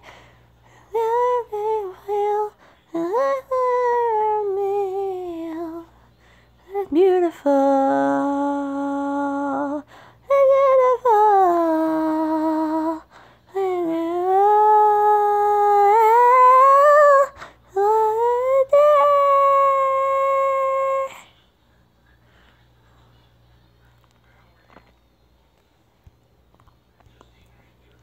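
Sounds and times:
young female voice singing wordlessly: 0:00.7 - 0:21.3.

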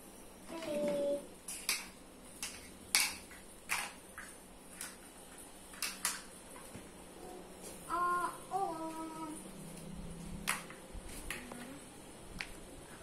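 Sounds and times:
plastic toy pieces clicking: 0:01.5 - 0:05.0, 0:05.7 - 0:06.3.

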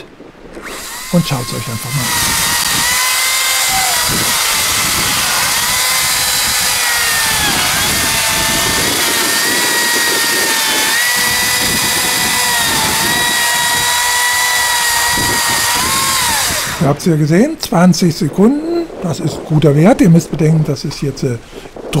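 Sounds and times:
electric chainsaw whine: 0:00.5 - 0:17.0
chain rasping in wood: 0:00.6 - 0:16.8.

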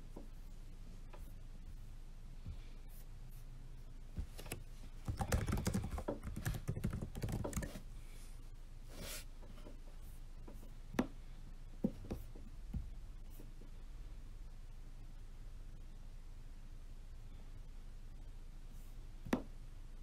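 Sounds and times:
typing on laptop keyboard: 0:05.0 - 0:07.8.

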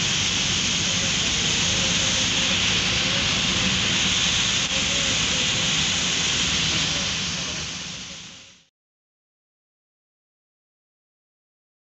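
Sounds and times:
tyres on flooded road: 0:00.0 - 0:08.6
heavy rain on car: 0:00.0 - 0:08.7.

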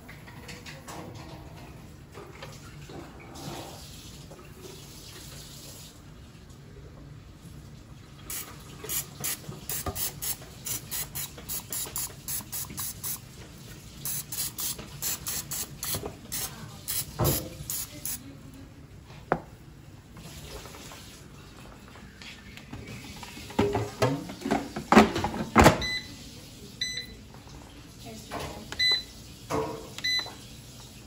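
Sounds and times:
oil spray can hissing: 0:08.3 - 0:13.2, 0:14.0 - 0:18.2.

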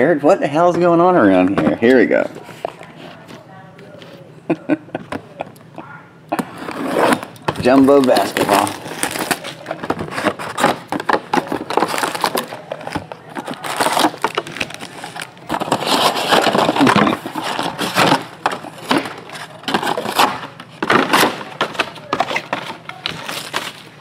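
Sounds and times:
packaging crinkling and crunching: 0:07.1 - 0:24.0
sharp packaging clicks: 0:07.1 - 0:24.0.

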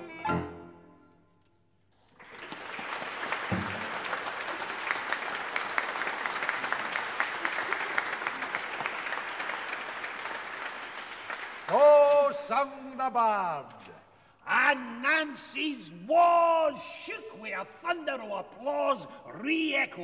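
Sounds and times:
string and keyboard chord: 0:00.0 - 0:01.2
audience applause: 0:02.0 - 0:12.4.

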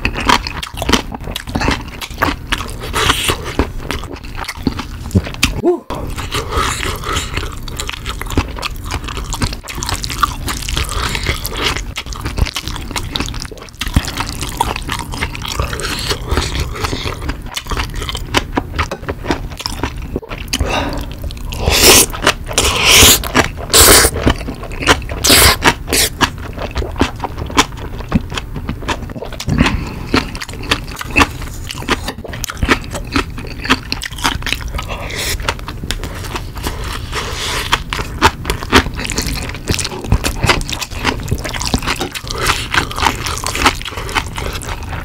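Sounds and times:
wet chewing: 0:00.0 - 0:45.0
slurping noodles: 0:20.6 - 0:24.2.

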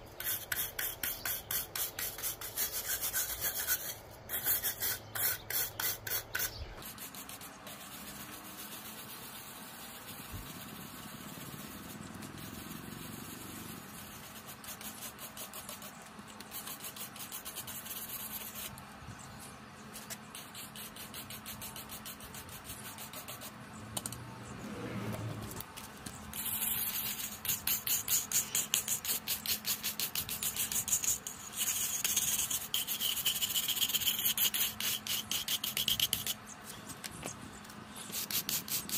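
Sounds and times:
scrub brush scraping rough wall: 0:00.2 - 0:18.7.

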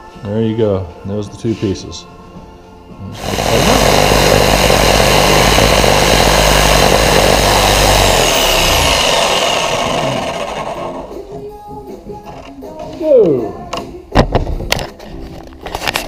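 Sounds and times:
jigsaw cutting plywood: 0:03.1 - 0:11.2.

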